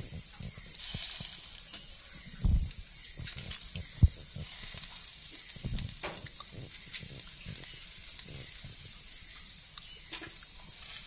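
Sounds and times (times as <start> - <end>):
dull low thumps: 0.0 - 0.8, 2.2 - 9.3
wood fire crackling: 0.0 - 11.0.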